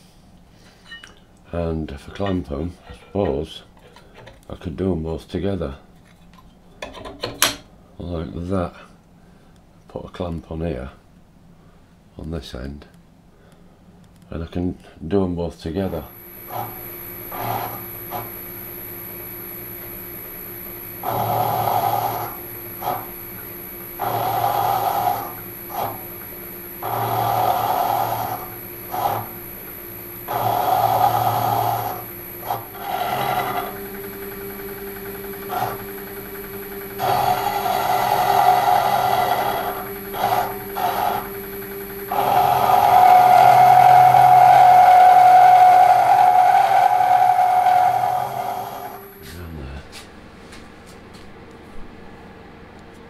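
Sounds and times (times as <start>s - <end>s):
milling machine cutting metal: 15.9s - 49.4s.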